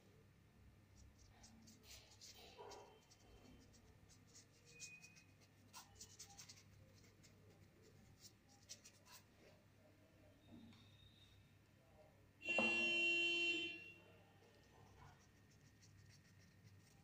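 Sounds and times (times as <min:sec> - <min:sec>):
paintbrush strokes: 0:01.0 - 0:09.6, 0:14.4 - 0:17.0.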